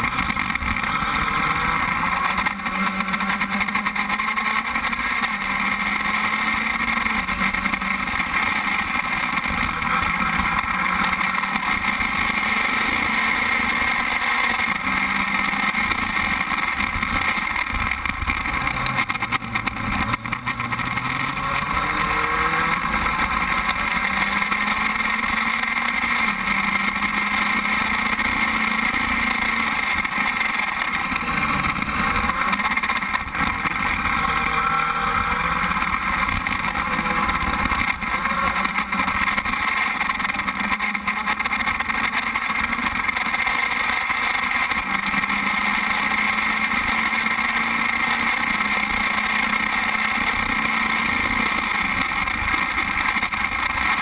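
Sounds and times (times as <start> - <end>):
race car engine running: 0.0 - 54.0.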